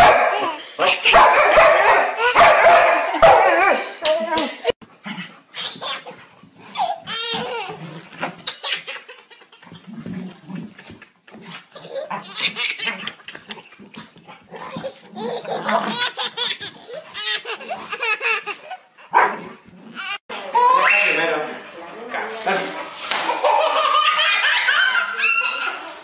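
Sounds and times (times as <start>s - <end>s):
baby laughing: 5.5s - 18.9s, 23.2s - 26.0s.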